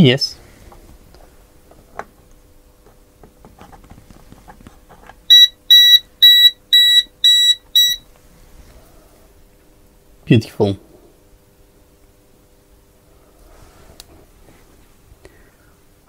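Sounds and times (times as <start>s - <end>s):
voltage detector beeping: 5.3s - 8.0s.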